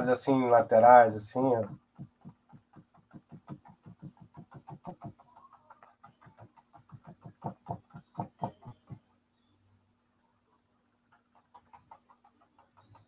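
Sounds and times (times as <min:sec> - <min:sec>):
paintbrush tapping on canvas: 0:01.5 - 0:09.0.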